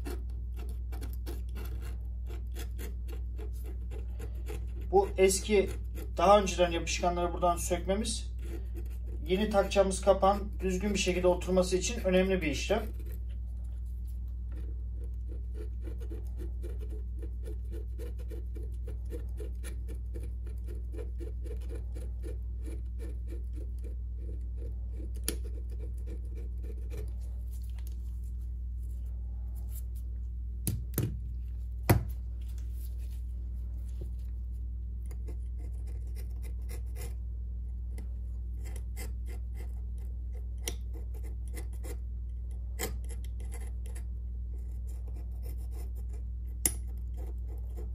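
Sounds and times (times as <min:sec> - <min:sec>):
metal tool scraping adhesive: 0:00.0 - 0:06.7, 0:14.5 - 0:27.2
low hum: 0:00.0 - 0:47.9.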